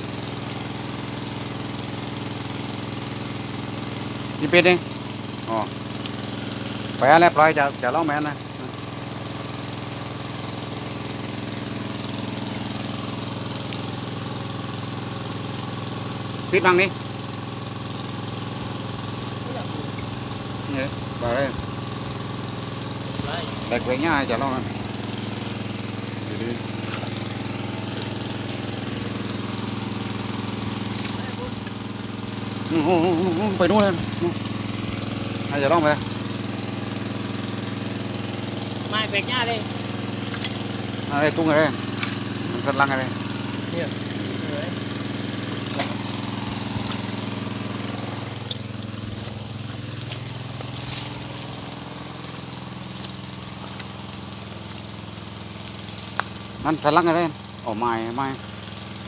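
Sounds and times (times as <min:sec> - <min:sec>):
small engine running: 0:00.0 - 0:59.0
vegetation rustling: 0:22.9 - 0:31.5, 0:45.6 - 0:56.3.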